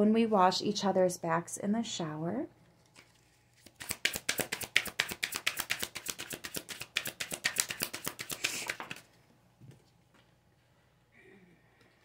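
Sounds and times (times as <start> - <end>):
cards being shuffled: 2.8 - 9.1.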